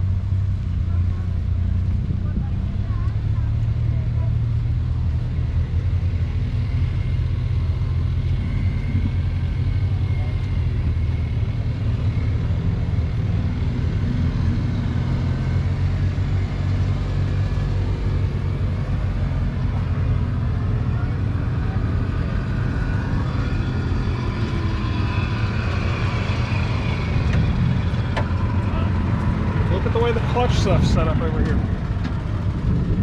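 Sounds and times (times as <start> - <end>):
faint voices: 18.7 - 25.8, 27.8 - 32.6
tractor engine idling: 25.6 - 33.0.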